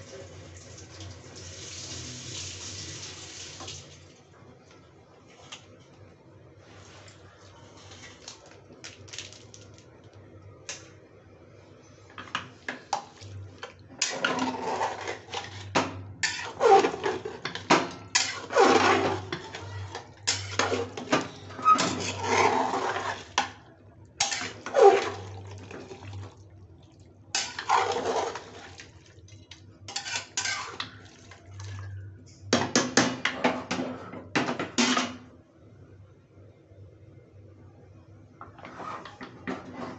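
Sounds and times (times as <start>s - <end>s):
metal spoon scraping a pot: 14.0s - 23.5s, 24.2s - 25.8s, 27.3s - 28.7s, 29.9s - 31.9s.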